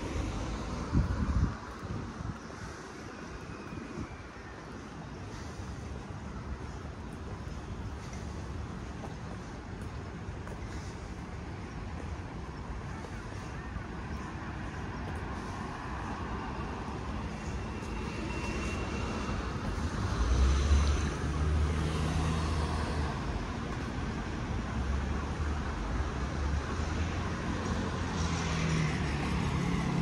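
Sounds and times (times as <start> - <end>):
city street traffic: 0.0 - 30.0
low engine hum passing close: 12.6 - 30.0.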